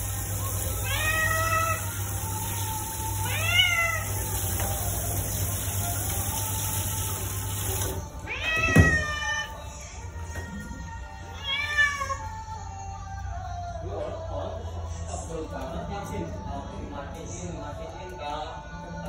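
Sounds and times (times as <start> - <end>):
shower spray hissing: 0.0 - 8.3
cat meowing: 0.7 - 2.0, 3.2 - 4.1, 8.2 - 9.7, 11.3 - 12.3.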